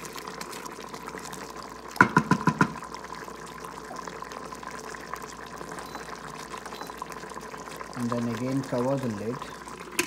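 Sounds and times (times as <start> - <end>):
sauce bubbling: 0.0 - 10.0.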